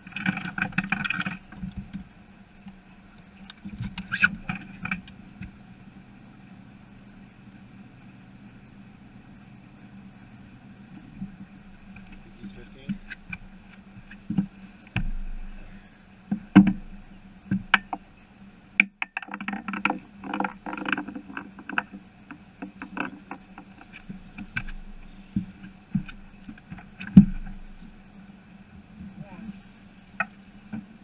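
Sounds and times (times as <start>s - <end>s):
knocks and thumps on a boat: 0.0s - 5.6s, 11.0s - 18.2s, 18.8s - 28.0s
faint steady hum: 0.0s - 31.0s.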